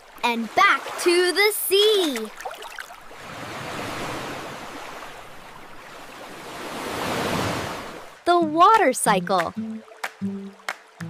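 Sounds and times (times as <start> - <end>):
sea waves washing in: 0.0 - 8.2.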